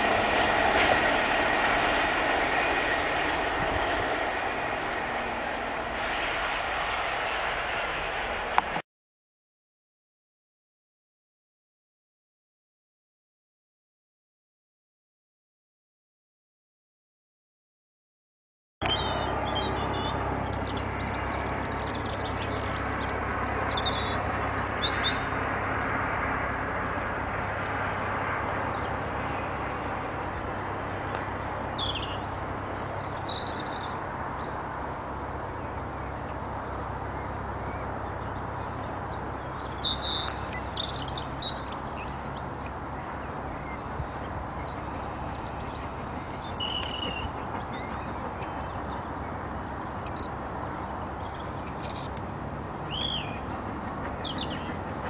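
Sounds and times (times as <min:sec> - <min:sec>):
background rush of noise: 0:00.0 - 0:08.8, 0:18.8 - 0:55.0
small birds chirping: 0:18.8 - 0:26.2, 0:27.6 - 0:55.0.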